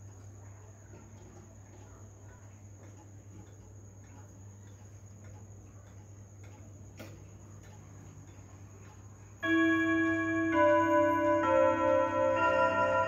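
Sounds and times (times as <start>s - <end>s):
clock click: 0.0s - 13.0s
clock ticking: 0.0s - 13.0s
clock chime melody on gong rods: 9.4s - 13.0s.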